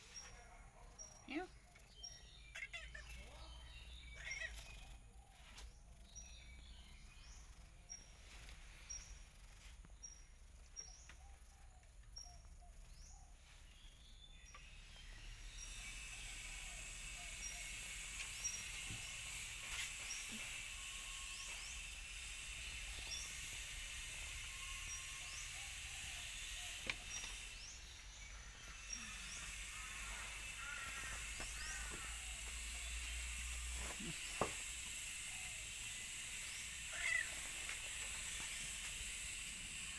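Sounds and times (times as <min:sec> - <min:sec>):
steady high hiss: 0:13.6 - 0:39.9.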